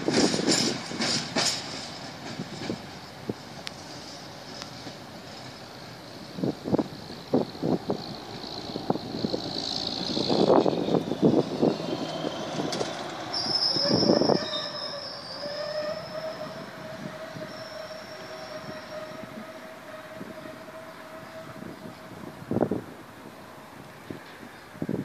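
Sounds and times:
train wagons clunking: 0.0s - 19.2s
high-pitched wheel squeal: 7.5s - 22.4s.

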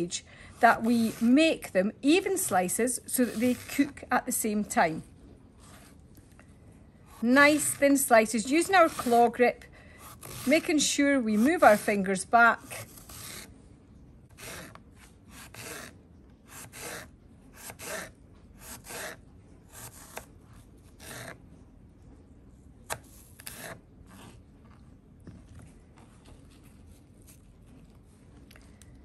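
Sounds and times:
knife slicing apple on board: 7.4s - 9.4s, 16.5s - 20.3s.

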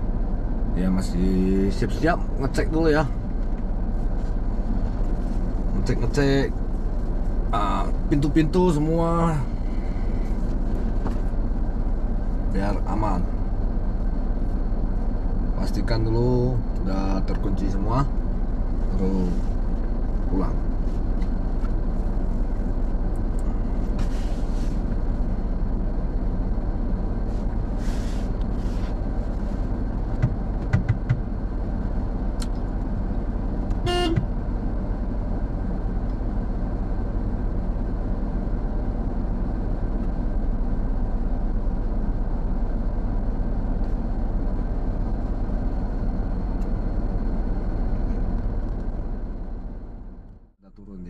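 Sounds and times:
car engine and road rumble: 0.0s - 51.0s
car horn toot: 33.7s - 34.3s.

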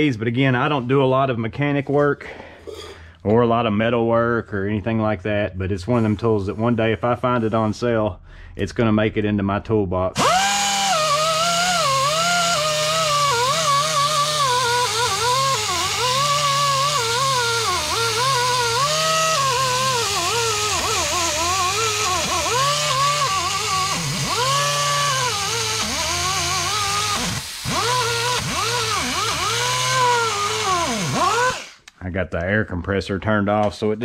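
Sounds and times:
die grinder whining against steel: 10.2s - 31.8s.

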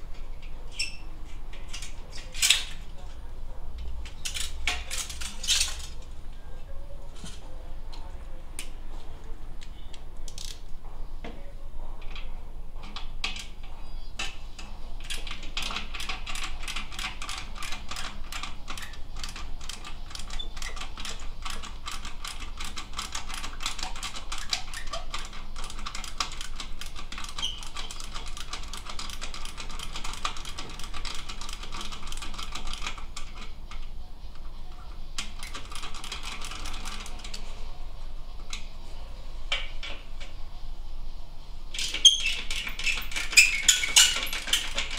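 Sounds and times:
ratchet wrench clicking: 10.3s - 10.6s.

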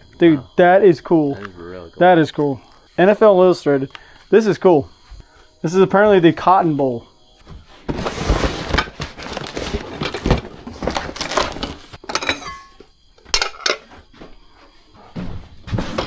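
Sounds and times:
cardboard box rustling: 7.8s - 12.0s
glass dishes clinking: 12.0s - 13.9s.

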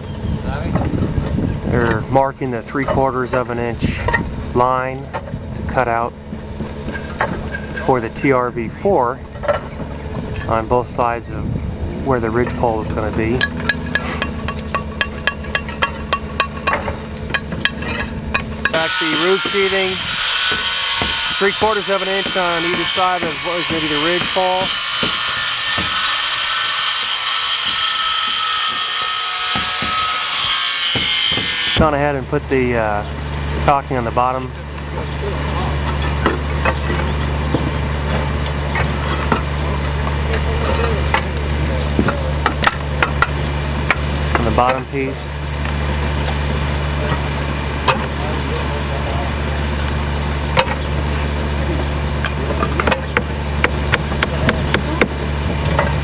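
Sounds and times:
low mechanical hum: 0.0s - 56.0s
circular saw whining: 12.1s - 33.2s
hammer knocking on roof: 24.2s - 26.0s.

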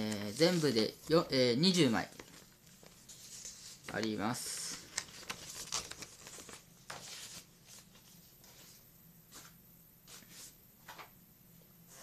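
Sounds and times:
paper tickets rustling: 0.0s - 8.0s.

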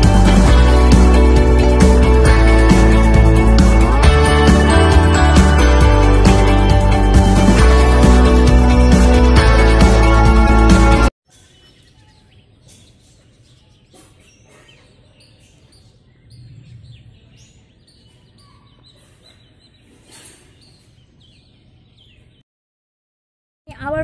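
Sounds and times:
outdoor background noise: 11.2s - 22.4s
faint birds chirping: 11.3s - 22.4s.

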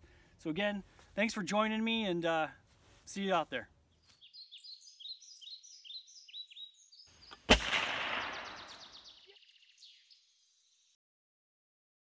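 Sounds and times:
birds chirping: 3.6s - 11.0s
loud gunshot with echo: 7.5s - 9.0s
rapid high bird trill: 8.2s - 10.3s.

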